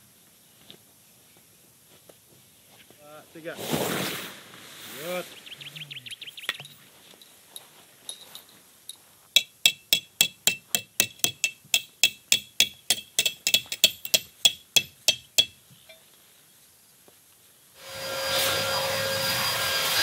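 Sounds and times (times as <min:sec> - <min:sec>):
hammer striking metal tent peg: 0:09.4 - 0:16.0.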